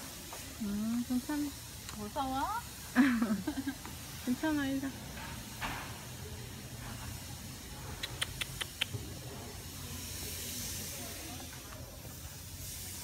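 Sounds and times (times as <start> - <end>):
background hiss: 0.0 - 13.0
sharp high ticks: 7.9 - 9.2.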